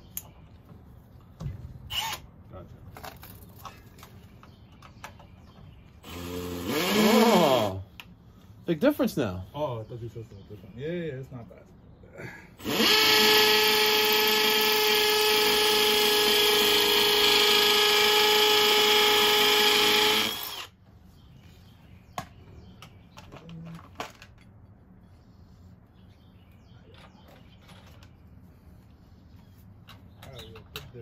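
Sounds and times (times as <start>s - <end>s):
hammer drill whining: 6.0s - 7.8s, 12.6s - 20.8s.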